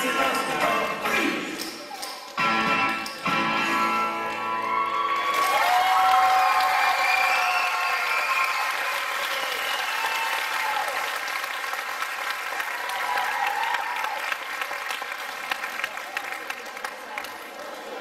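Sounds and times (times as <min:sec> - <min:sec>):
audience applauding: 0:04.5 - 0:18.0.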